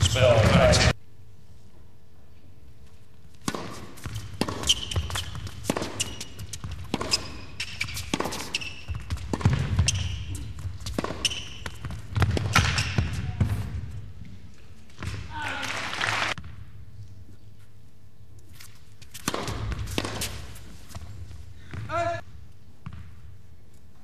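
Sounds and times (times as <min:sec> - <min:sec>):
tennis ball bouncing: 0:03.4 - 0:13.8, 0:19.1 - 0:22.0
racket hitting tennis ball: 0:03.4 - 0:13.9, 0:19.0 - 0:22.0
shoe squeaks: 0:04.0 - 0:13.3.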